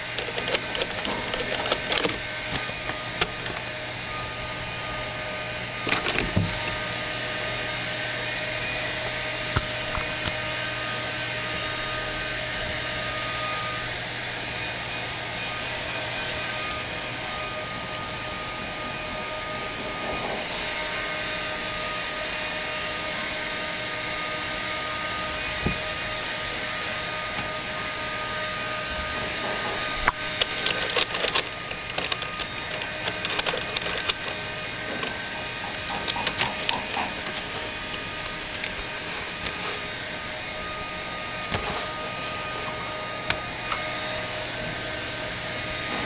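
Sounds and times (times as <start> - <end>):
kitten claws scratching drawer: 0.0 - 3.6, 30.1 - 38.8
office machinery hum: 0.0 - 46.0.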